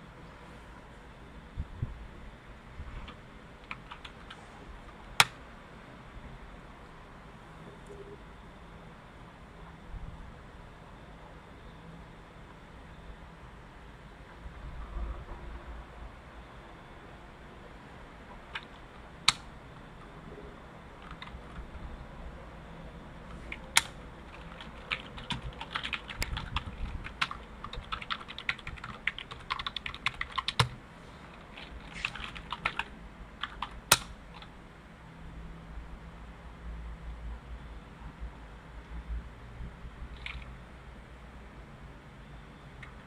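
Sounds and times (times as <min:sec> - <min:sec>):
computer keyboard typing: 0:03.0 - 0:04.4, 0:18.5 - 0:19.4, 0:21.0 - 0:21.6, 0:23.3 - 0:34.5, 0:40.2 - 0:40.5.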